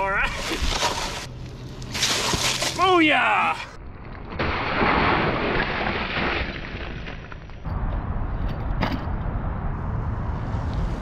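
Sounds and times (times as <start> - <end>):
wheel crunching into snow: 0.0 - 7.6.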